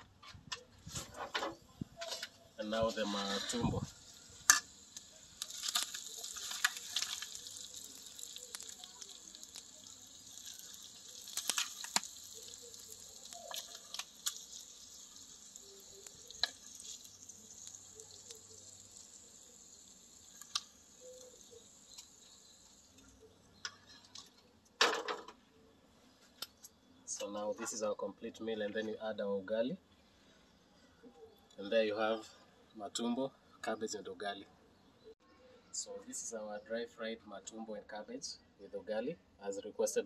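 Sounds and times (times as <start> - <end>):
food sizzling in pan: 2.6 - 23.9.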